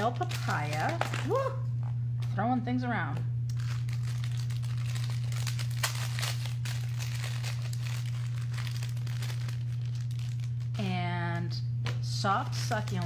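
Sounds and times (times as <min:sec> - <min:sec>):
packaging crinkling: 0:00.0 - 0:01.6, 0:03.5 - 0:10.8, 0:11.8 - 0:13.0
low electrical hum: 0:00.0 - 0:13.0.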